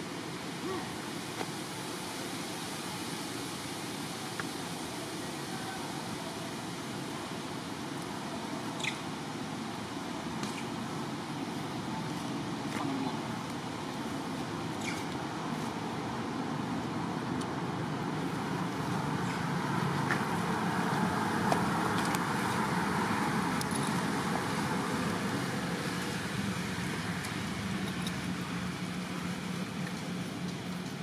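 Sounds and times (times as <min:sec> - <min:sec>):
road traffic hum: 0:00.0 - 0:31.0
vehicle passing by: 0:17.9 - 0:30.3.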